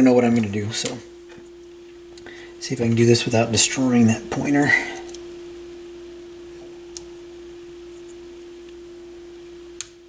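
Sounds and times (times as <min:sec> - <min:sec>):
steady pure tone: 0:00.0 - 0:10.0
small click: 0:09.8 - 0:10.0.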